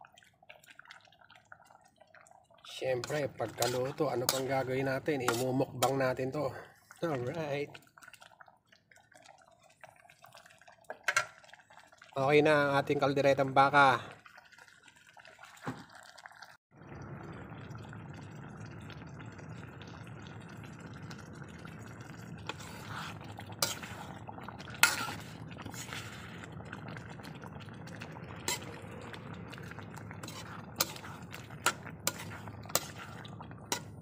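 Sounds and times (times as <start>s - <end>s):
ladle stirring thick stew: 0.1s - 8.5s, 21.2s - 34.0s.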